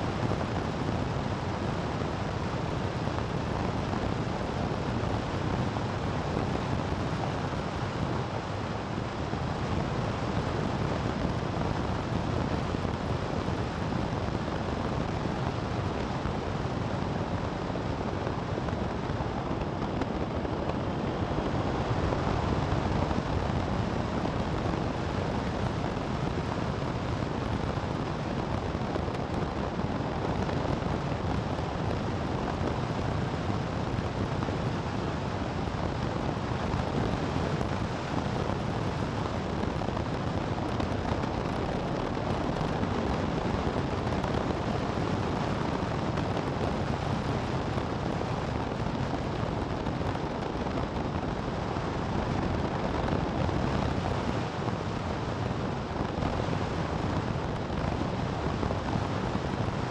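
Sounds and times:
wind buffeting the microphone: 0:00.0 - 0:59.9
wind rush and road noise: 0:00.0 - 0:59.9.

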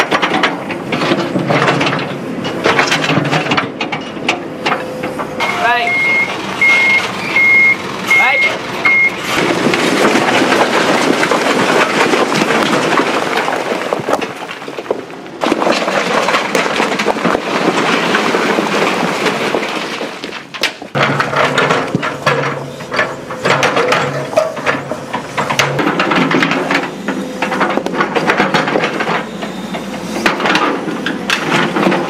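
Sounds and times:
soil and stones pouring out: 0:09.3 - 0:27.0.

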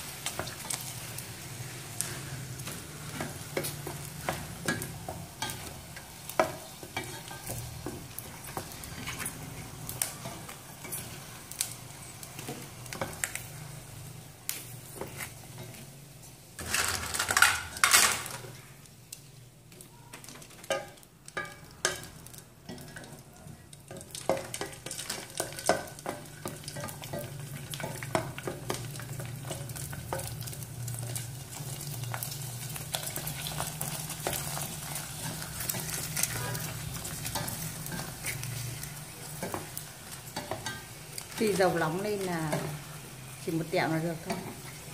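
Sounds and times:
hot oil sizzling: 0:00.0 - 0:44.9.

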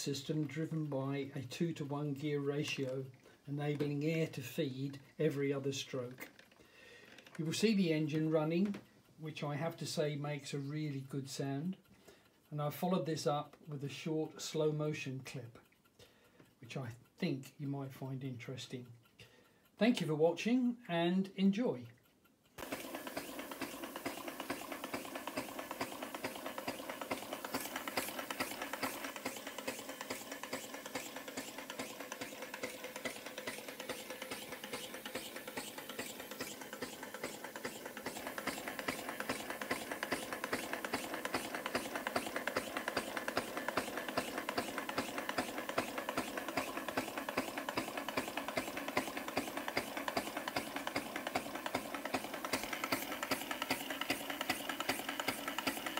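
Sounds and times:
air engine clicking and puffing: 0:22.5 - 0:55.9.

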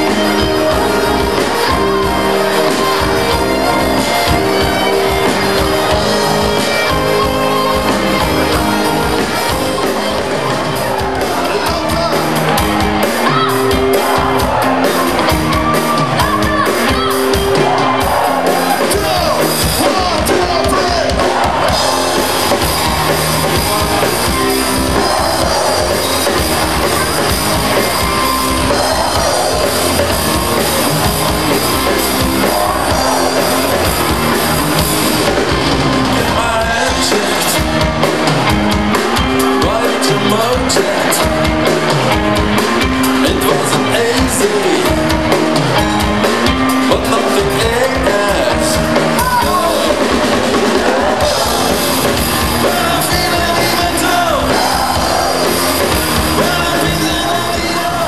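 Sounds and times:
bass guitar: 0:00.0 - 0:58.0
drum kit beat: 0:00.0 - 0:58.0
electric guitars: 0:00.0 - 0:58.0
person singing: 0:23.5 - 0:38.2, 0:39.4 - 0:41.9, 0:43.1 - 0:45.8, 0:46.7 - 0:58.0.

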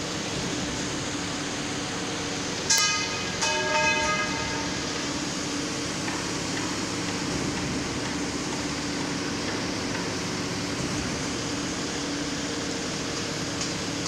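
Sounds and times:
construction machinery drone: 0:00.0 - 0:14.0.

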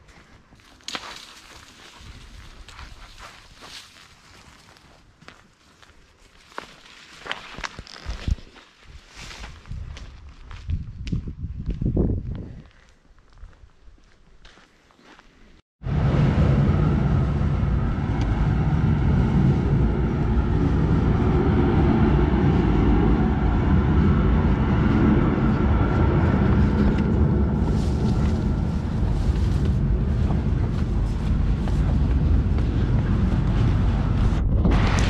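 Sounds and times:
freight train rumble: 0:15.8 - 0:35.0
wind rushing: 0:15.8 - 0:35.0.

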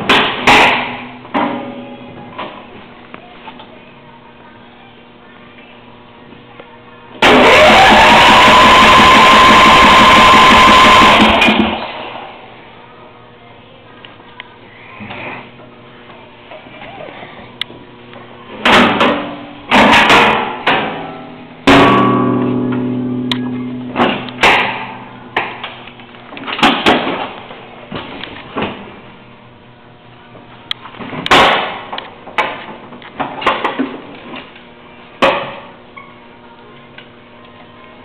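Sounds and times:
loud metallic knocks and clanks: 0:00.0 - 0:01.7, 0:18.6 - 0:23.1, 0:24.0 - 0:25.7.

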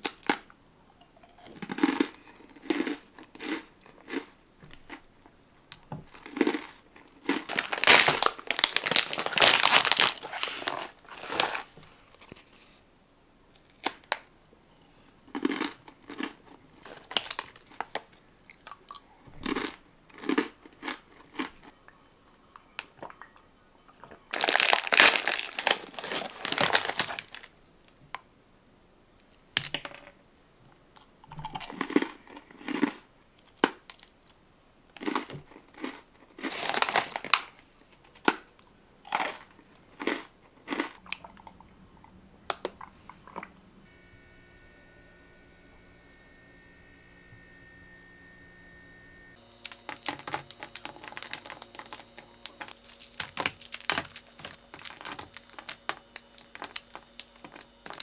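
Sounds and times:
plastic snack wrappers crinkling: 0:00.0 - 0:00.5, 0:01.4 - 0:12.8, 0:13.5 - 0:14.3, 0:15.3 - 0:21.8, 0:24.0 - 0:27.6, 0:35.0 - 0:41.5, 0:49.4 - 0:58.0
crunchy biting and chewing: 0:01.2 - 0:05.1, 0:06.1 - 0:11.7, 0:15.3 - 0:21.8, 0:31.0 - 0:34.0, 0:38.0 - 0:41.7, 0:49.4 - 0:58.0.

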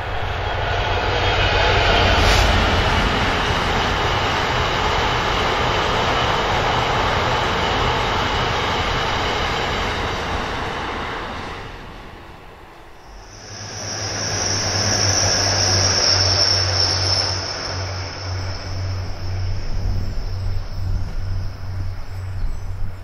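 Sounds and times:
train wheels rolling on rail: 0:00.0 - 0:23.0.

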